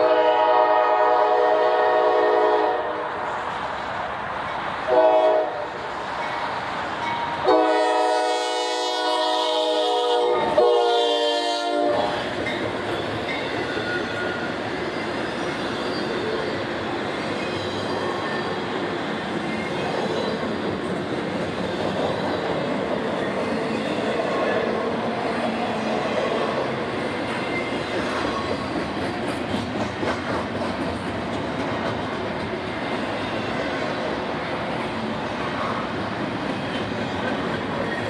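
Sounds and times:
locomotive air horn: 0.0 - 3.0, 4.9 - 5.8, 7.4 - 12.3
train rumbling past: 0.0 - 38.0
train wheel clatter: 26.8 - 33.9.

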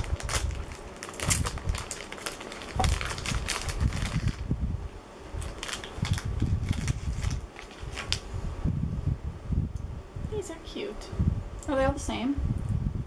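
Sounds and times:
plastic packets crinkling: 0.0 - 4.5, 5.4 - 8.2.

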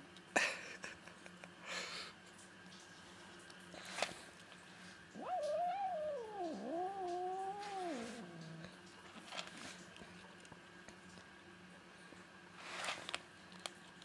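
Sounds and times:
cat yowling angrily: 5.2 - 8.7.

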